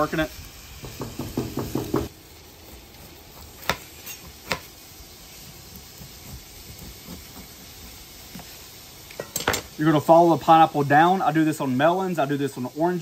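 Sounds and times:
faint steady hiss: 0.0s - 13.0s
knife scraping through rind: 2.7s - 4.6s.

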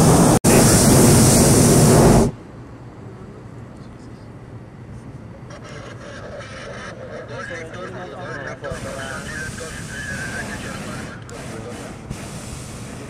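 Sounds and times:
propane burner firing: 0.0s - 2.4s, 8.8s - 13.0s.

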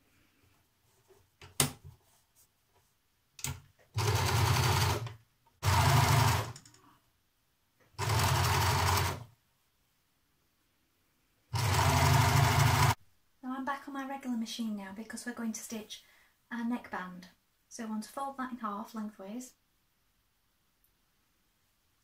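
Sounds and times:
overlocker sewing machine stitching: 3.4s - 6.7s, 7.9s - 9.3s, 11.5s - 13.0s.

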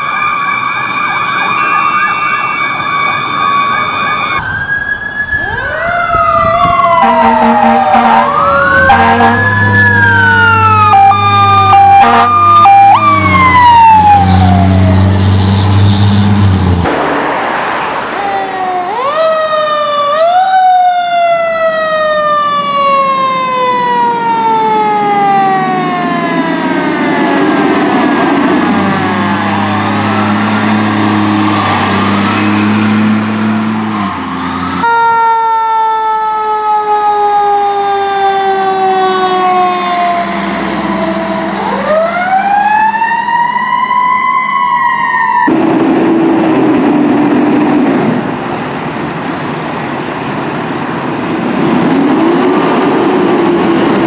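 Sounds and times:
mechanical siren wailing: 0.0s - 16.0s, 18.2s - 45.6s
low air horn blast: 7.0s - 9.5s, 11.8s - 12.5s.

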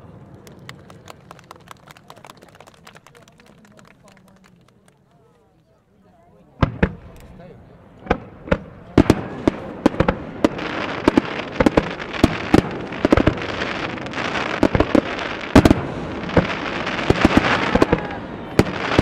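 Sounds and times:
fireworks bangs: 6.6s - 19.0s.

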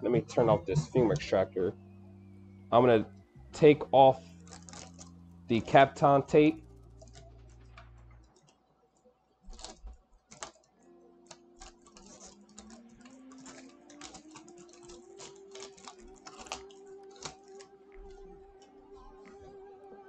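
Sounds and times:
tape peeling with crackles: 4.2s - 19.6s.

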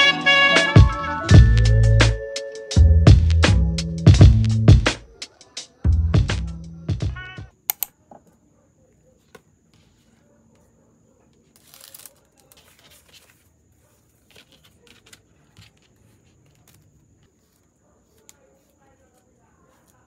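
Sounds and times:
sharp clicks: 7.7s - 8.0s
soft rustling of packing: 8.1s - 20.0s
paper or plastic crinkle: 11.4s - 20.0s.

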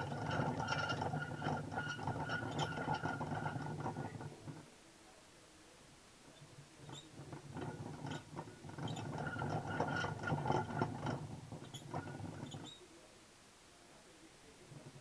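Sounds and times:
hamster wheel spinning and rattling: 0.0s - 4.7s, 6.8s - 12.8s, 14.7s - 15.0s.

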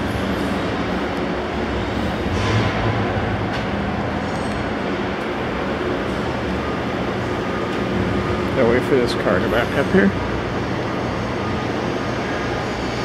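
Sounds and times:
low mechanical rumble and hum: 0.0s - 13.0s.

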